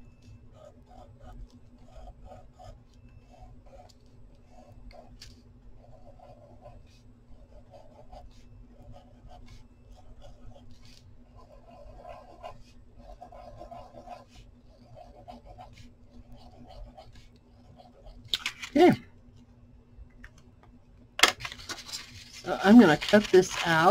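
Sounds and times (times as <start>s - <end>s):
pen scratching on paper: 0.5s - 5.2s, 5.8s - 18.2s.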